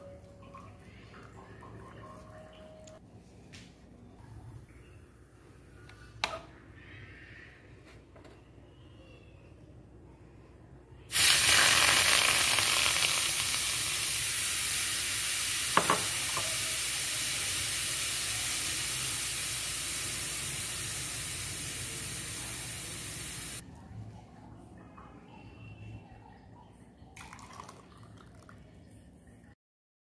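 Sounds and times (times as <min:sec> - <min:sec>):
liquid sizzling in hot pan: 0:11.1 - 0:23.6.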